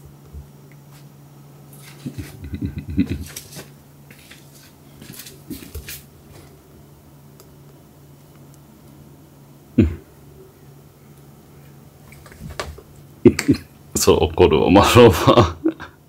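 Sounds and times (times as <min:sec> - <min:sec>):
soft thumps and rustles: 0:12.2 - 0:12.9.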